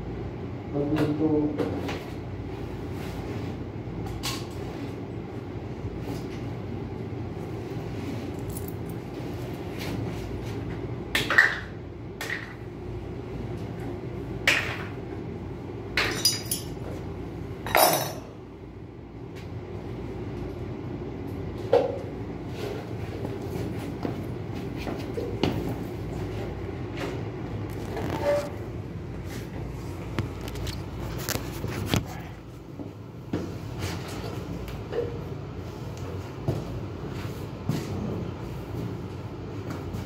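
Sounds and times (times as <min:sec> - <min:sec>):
steady low hum: 0:00.0 - 0:40.0
metal tools clinking: 0:16.1 - 0:16.8, 0:17.7 - 0:18.2.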